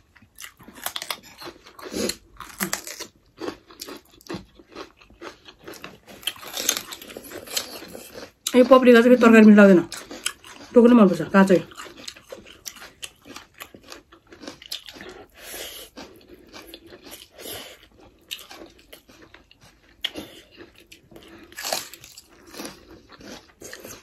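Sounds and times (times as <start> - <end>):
wet chewing: 0.0 - 24.0
crunching raw pepper: 0.2 - 8.6, 11.7 - 24.0.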